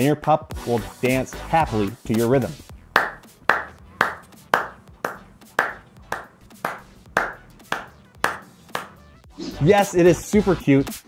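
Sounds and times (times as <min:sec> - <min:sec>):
hands clapping a steady beat: 0:01.7 - 0:09.2.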